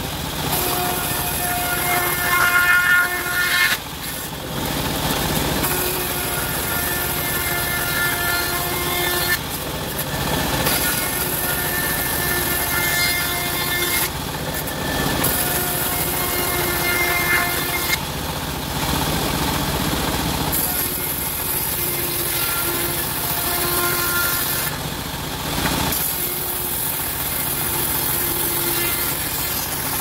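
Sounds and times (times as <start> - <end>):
bandsaw mill cutting wood: 0.0 - 30.0.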